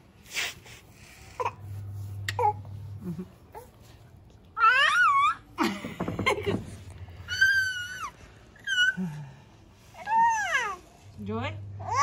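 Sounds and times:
infant squealing: 4.6 - 5.4.

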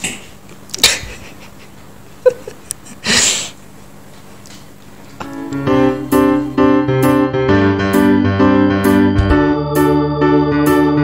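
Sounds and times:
piano music: 5.2 - 11.0.

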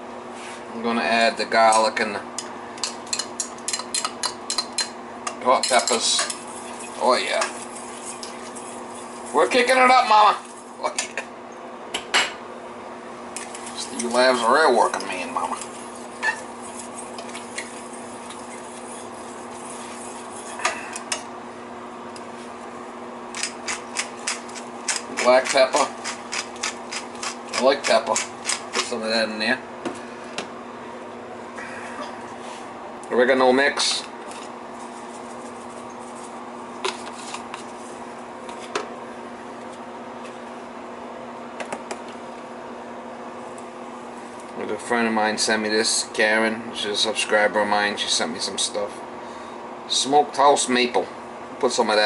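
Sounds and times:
steady low hum: 0.0 - 52.0
spatula stirring rice in pot: 15.2 - 20.6.

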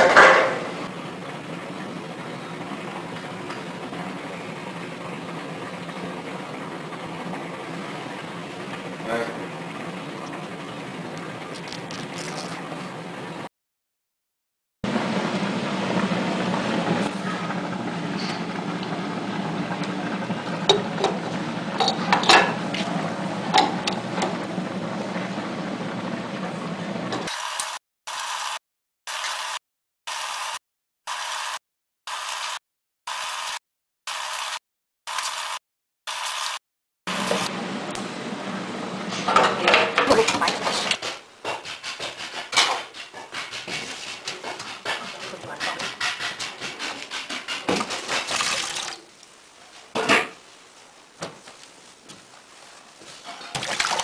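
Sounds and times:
cloth rubbing inside steel bucket: 41.8 - 48.8.

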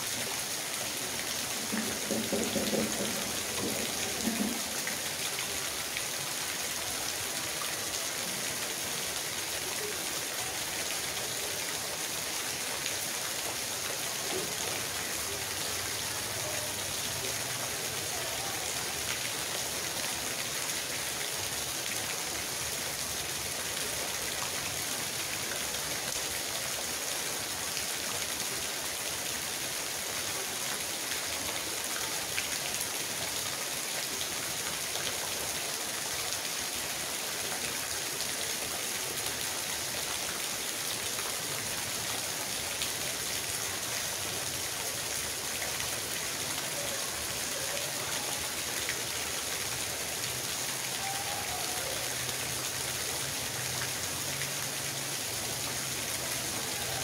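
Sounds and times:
rain on gravel and puddles: 0.0 - 57.0
runoff water splashing into puddle: 0.0 - 57.0.

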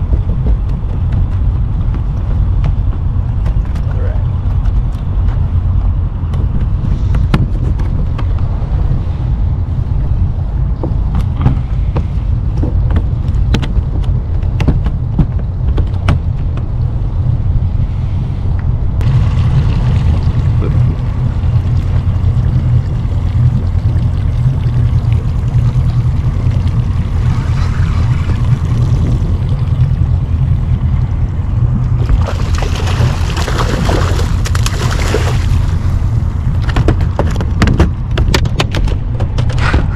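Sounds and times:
steady low rumble: 0.0 - 39.9
fish splashing in water: 32.0 - 36.1.

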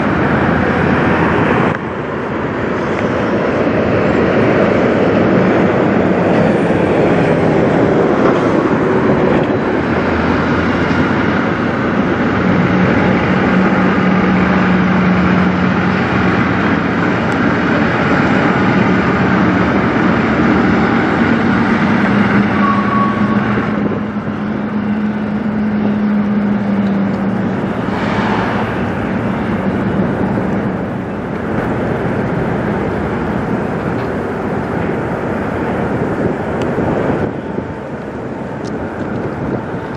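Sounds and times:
diesel trucks driving past: 0.0 - 39.9
brief sharp noise: 27.9 - 29.0.

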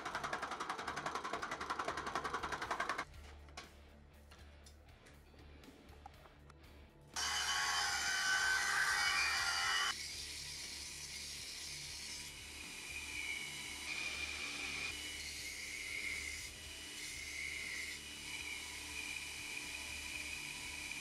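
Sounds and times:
belt grinder motor hum: 7.2 - 10.0, 12.5 - 21.0.

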